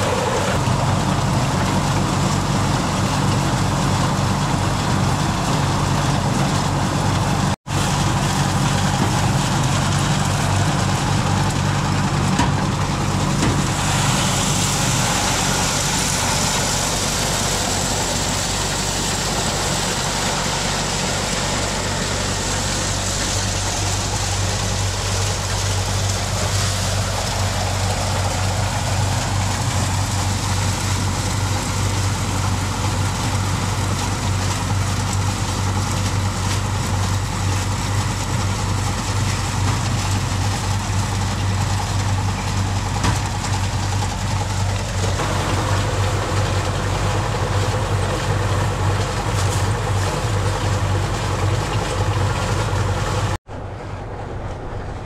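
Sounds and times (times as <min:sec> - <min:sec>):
engine running: 0:00.0 - 0:55.0
broad hiss: 0:13.6 - 0:31.9.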